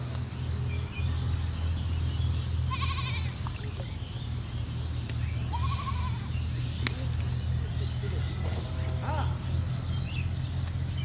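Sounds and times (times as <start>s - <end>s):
goat bleating: 2.7s - 3.3s, 5.5s - 6.2s.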